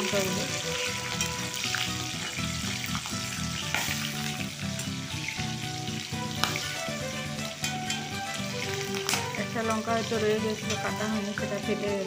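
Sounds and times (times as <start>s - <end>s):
chilli bursting in oil: 0.0s - 12.0s
chillies sizzling in hot oil: 0.0s - 12.0s
spoon clicking against pan: 7.6s - 8.1s.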